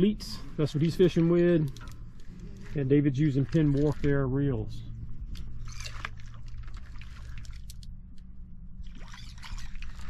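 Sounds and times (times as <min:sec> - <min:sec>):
fish splashing in water: 0:05.6 - 0:07.8, 0:08.8 - 0:10.0.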